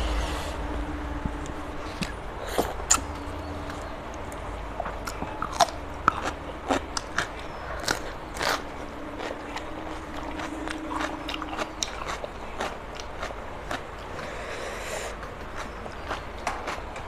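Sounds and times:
faint steady hum: 0.0 - 17.0
cucumber crunching: 1.8 - 14.4.

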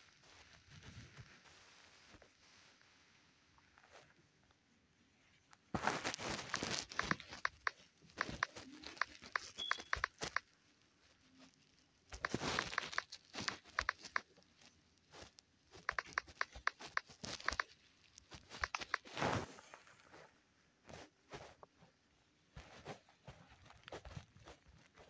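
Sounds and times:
touchscreen keyboard typing clicks: 6.8 - 10.4, 12.2 - 14.3, 15.8 - 17.7, 18.4 - 19.1.

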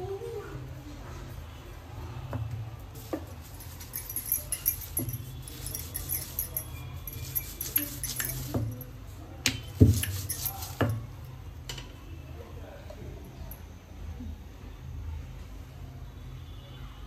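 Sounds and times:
rolling pin rolling dough: 2.4 - 8.9, 9.7 - 11.1
metal bangles jingling: 3.0 - 9.0, 9.8 - 11.2.

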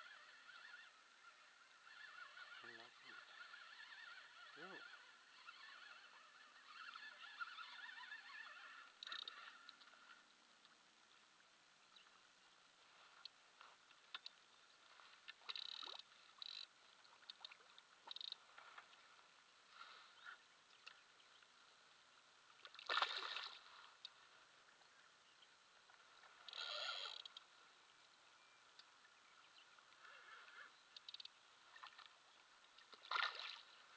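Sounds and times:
light clicks: 13.2 - 14.4.

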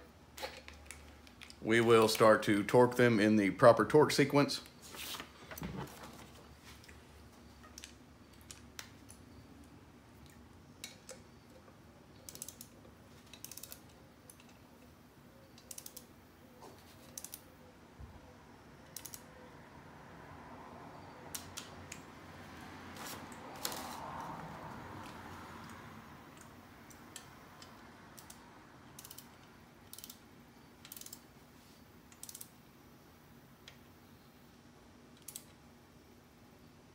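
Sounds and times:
torque wrench ratchet clicks: 12.3 - 12.7, 13.3 - 14.4, 15.6 - 16.1, 29.0 - 30.2, 30.8 - 31.2, 32.1 - 32.5.

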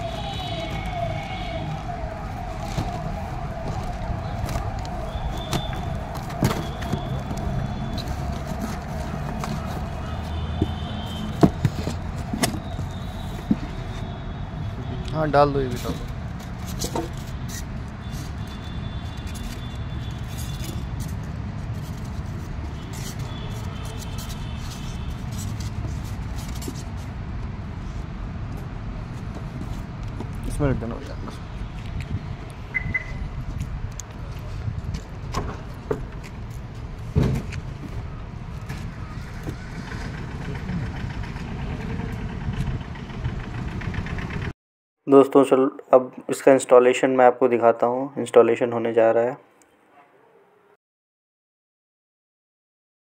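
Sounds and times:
packing rustling and scraping: 0.0 - 14.1, 15.7 - 27.2
cardboard box bumps: 5.3 - 9.6, 10.4 - 12.8
cardboard box knocking: 10.5 - 12.6.

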